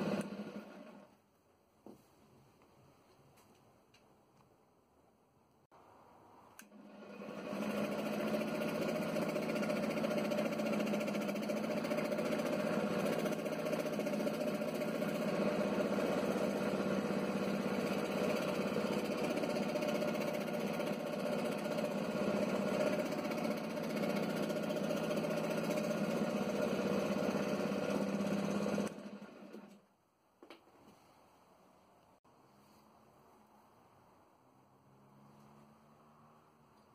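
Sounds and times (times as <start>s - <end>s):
electric scroll saw running: 0.0s - 1.1s, 6.6s - 29.8s.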